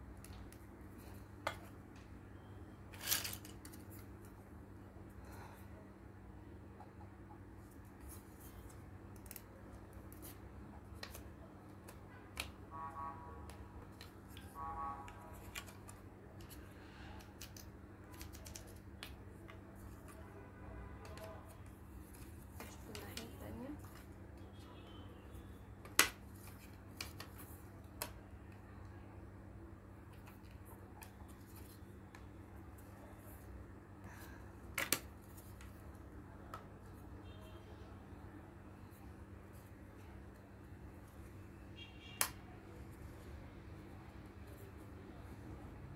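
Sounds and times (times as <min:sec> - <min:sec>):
plastic pieces clicking and scraping: 0:02.9 - 0:04.1, 0:15.3 - 0:19.6.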